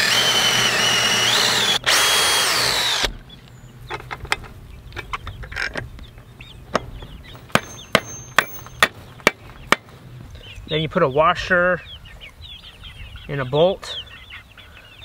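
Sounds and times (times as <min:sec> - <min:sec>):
electric drill boring into wood: 0:00.0 - 0:03.2.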